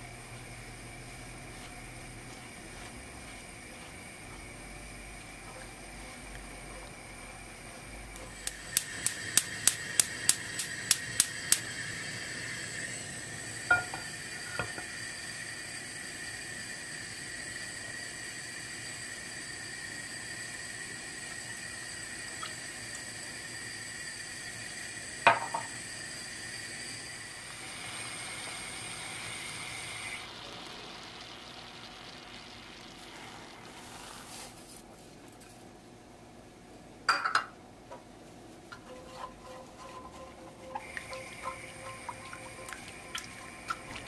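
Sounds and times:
steady hiss with high tones: 0.0s - 34.8s.

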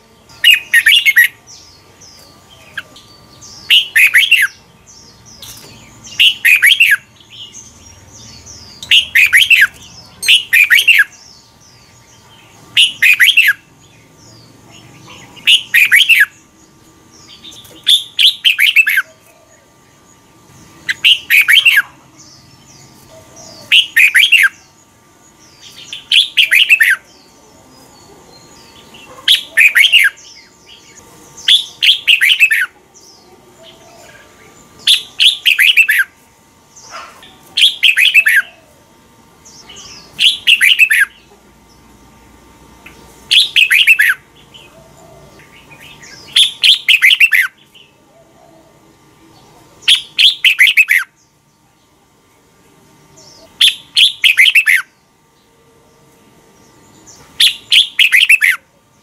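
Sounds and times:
bird singing short rapid phrases: 0.3s - 16.4s, 39.4s - 41.3s, 42.9s - 44.2s, 45.6s - 48.0s, 49.8s - 51.3s, 53.2s - 55.0s, 57.0s - 58.6s.

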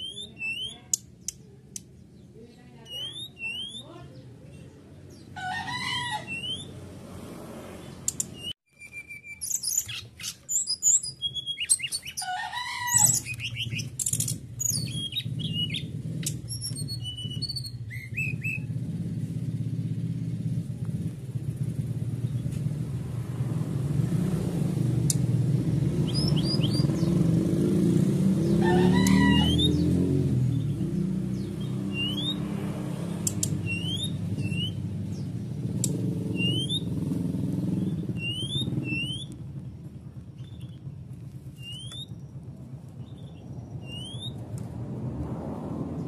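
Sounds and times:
bird chirping and whistling: 0.0s - 1.4s, 2.8s - 3.9s, 5.8s - 6.8s, 8.0s - 18.8s, 25.9s - 27.5s, 28.4s - 32.6s, 33.2s - 39.4s, 41.6s - 42.3s, 43.0s - 44.4s.

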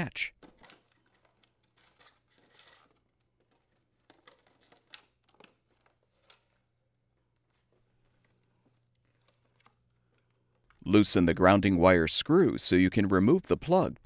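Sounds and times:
plastic clicks and rustles: 0.4s - 10.8s.

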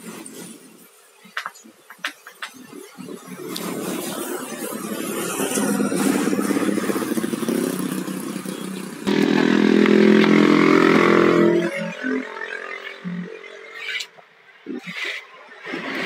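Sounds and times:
steady engine hum: 3.2s - 14.5s
motorcycle engine passing by: 3.8s - 13.7s.

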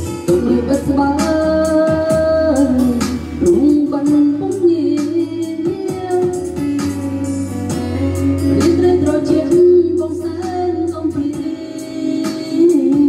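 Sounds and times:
backing music with a beat: 0.0s - 13.0s.

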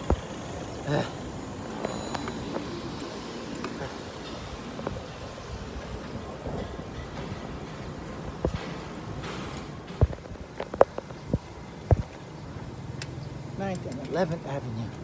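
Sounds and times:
street traffic: 0.0s - 15.0s
wind noise: 2.4s - 12.3s.

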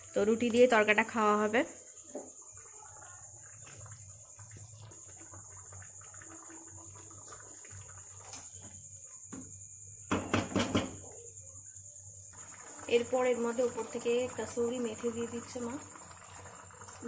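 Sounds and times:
crickets chirring: 0.0s - 17.0s
sharp knocks: 10.1s - 11.0s.

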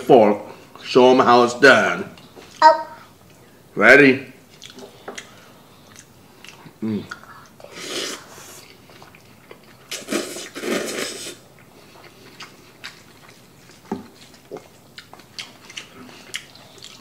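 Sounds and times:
person slurping noodles: 7.7s - 8.6s, 9.9s - 11.4s.

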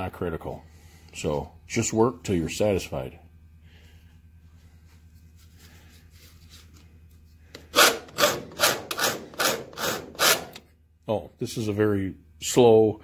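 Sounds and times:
file rasping on sheet metal: 7.7s - 10.6s.

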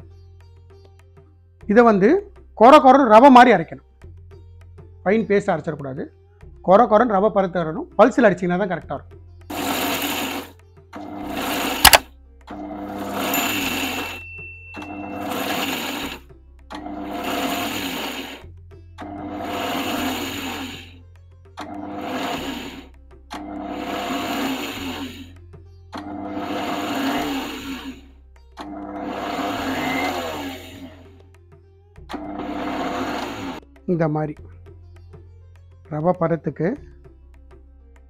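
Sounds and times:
mixer grinder grinding: 9.5s - 18.4s, 19.0s - 21.0s, 21.6s - 25.3s, 26.0s - 31.2s, 32.1s - 33.6s
sharp click: 11.8s - 12.1s.

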